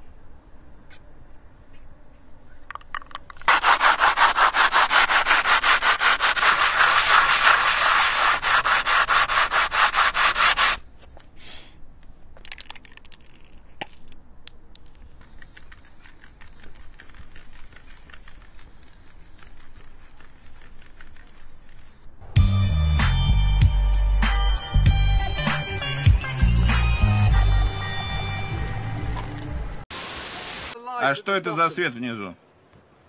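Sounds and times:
hard object rasping on asphalt: 0:03.4 - 0:10.8, 0:15.2 - 0:22.1
spray can hissing: 0:03.4 - 0:10.8, 0:15.2 - 0:22.1, 0:29.9 - 0:30.8.

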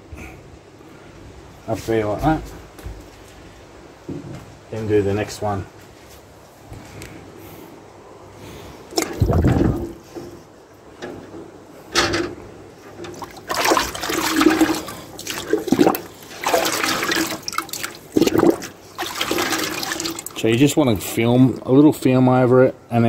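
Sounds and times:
liquid sloshing and splashing: 0:08.9 - 0:10.1, 0:12.9 - 0:20.5.

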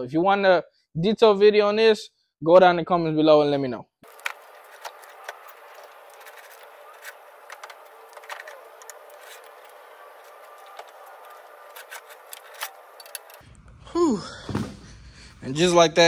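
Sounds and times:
hand tools tapping metal: 0:04.0 - 0:13.4.

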